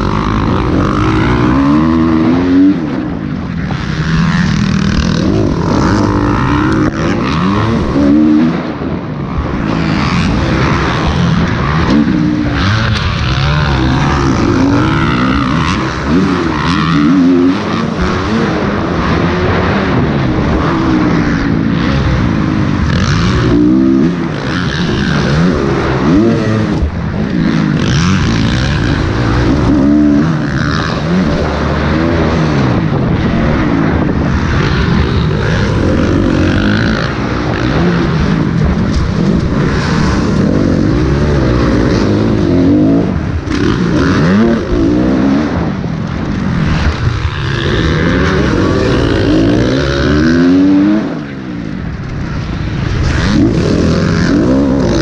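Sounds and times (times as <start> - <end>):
motocross bike engine revving: 0.0 - 55.0
other race bikes: 0.0 - 55.0.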